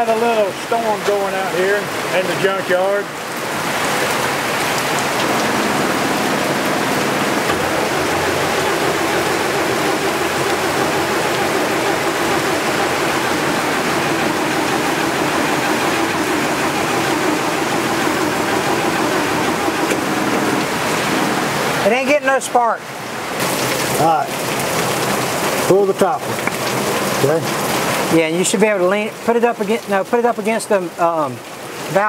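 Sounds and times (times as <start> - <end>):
rain hiss: 0.0 - 32.0
starter cranking engine: 5.2 - 21.6.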